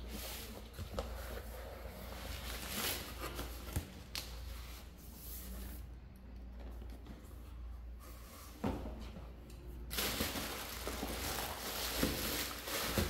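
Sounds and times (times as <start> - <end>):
bubble wrap rustling and crinkling: 0.0 - 4.6, 9.9 - 13.0.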